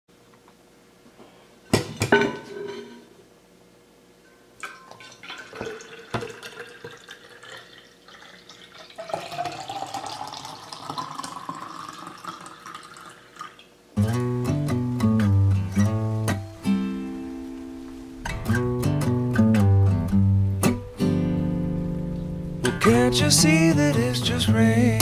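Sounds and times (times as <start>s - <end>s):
coffee pouring into a metal bottle: 4.7s - 13.7s.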